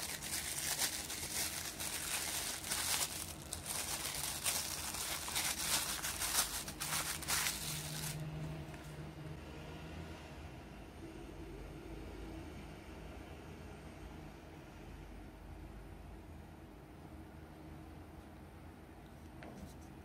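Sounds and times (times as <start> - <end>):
plastic bag crinkling: 0.0 - 8.3.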